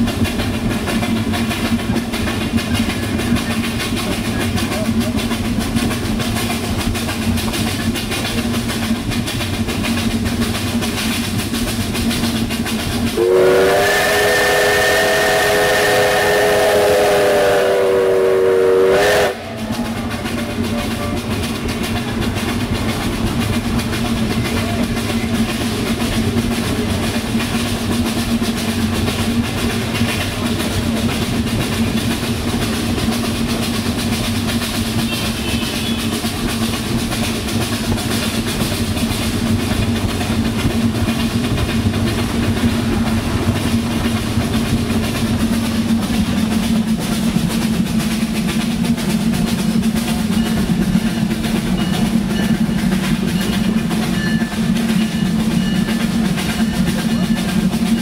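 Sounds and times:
train running noise: 0:00.0 - 0:58.0
steam locomotive whistle: 0:13.0 - 0:21.2, 0:34.7 - 0:36.5.

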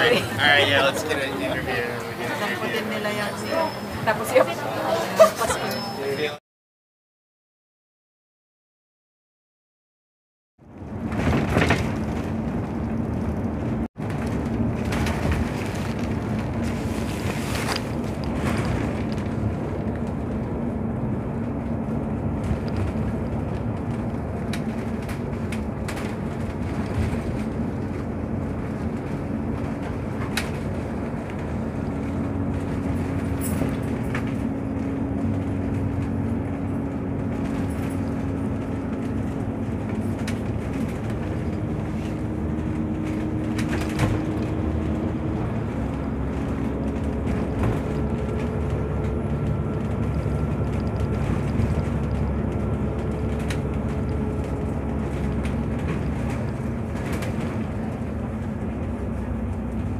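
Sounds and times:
bus engine hum: 0:00.0 - 0:06.4, 0:10.6 - 0:59.9
road noise: 0:00.0 - 0:06.4, 0:10.6 - 0:59.9.

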